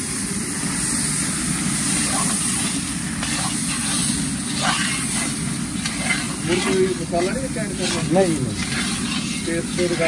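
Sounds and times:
spices sizzling in hot oil: 0.0 - 10.0
ladle scraping pan: 2.0 - 10.0.

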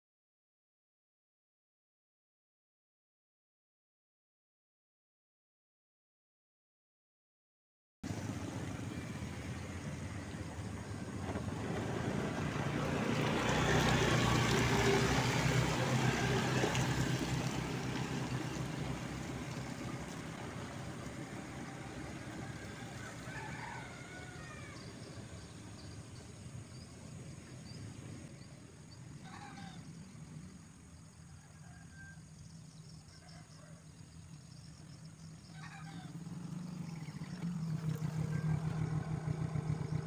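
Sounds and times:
vehicle engine passing by: 8.0 - 40.0
faint bird calls: 29.1 - 30.2.

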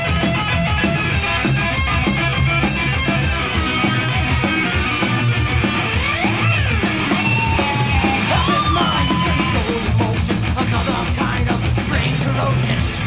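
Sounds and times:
sliding high guitar notes: 0.0 - 10.8
thrash metal song: 0.0 - 13.0.

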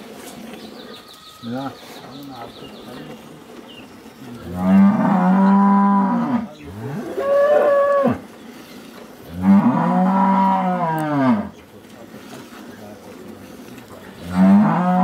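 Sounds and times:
cow mooing: 4.4 - 8.2, 9.3 - 11.5, 14.2 - 15.0.

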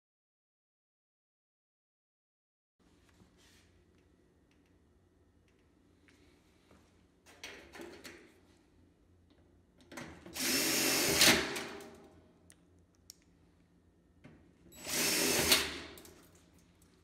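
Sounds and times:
cordless drill driving screws: 10.4 - 11.7, 14.8 - 16.0.

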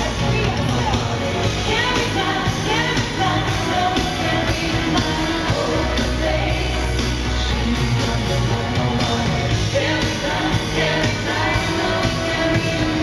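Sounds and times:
live pop band with dance beat: 0.0 - 13.0.

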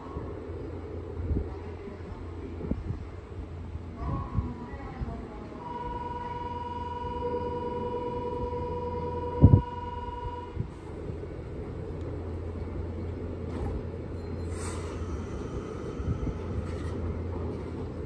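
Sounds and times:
train low rumble: 0.0 - 18.0
air hiss of brakes: 14.4 - 16.5.

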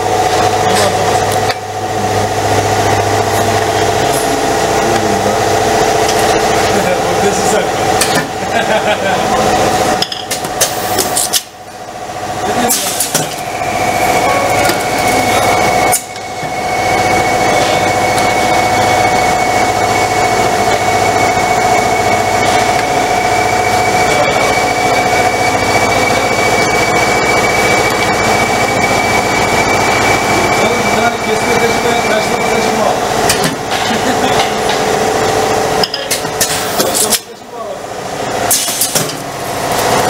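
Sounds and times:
machine humming: 0.0 - 40.0
thin high whine: 10.8 - 33.4.

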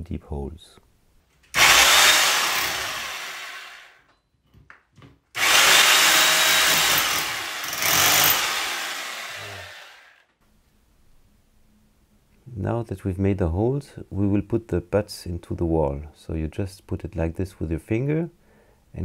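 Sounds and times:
hammer drill boring into wall: 1.5 - 4.0, 5.4 - 10.2.

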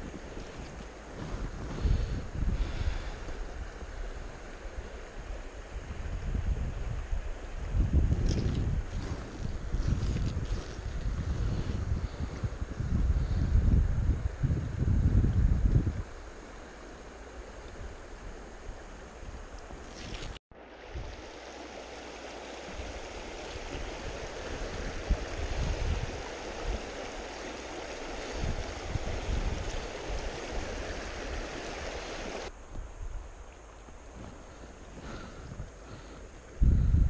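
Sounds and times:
wind buffeting microphone: 0.0 - 5.0, 5.7 - 16.4, 22.7 - 37.0
river rushing over rocks: 20.6 - 32.5.

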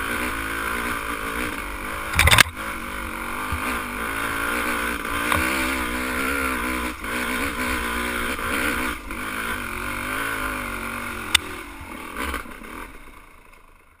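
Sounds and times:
dirt bike engine revving: 0.0 - 13.9
sharp click: 2.1 - 2.6.

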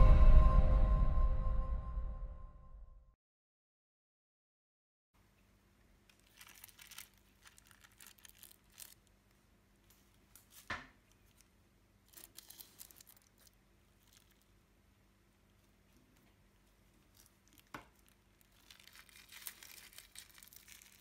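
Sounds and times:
plastic bag crinkling: 6.0 - 14.8, 15.4 - 21.0.

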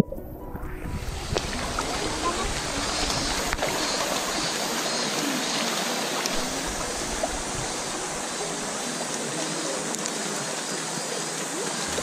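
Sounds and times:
water rushing over rocks: 0.0 - 12.0
faint clicks: 9.1 - 10.4.

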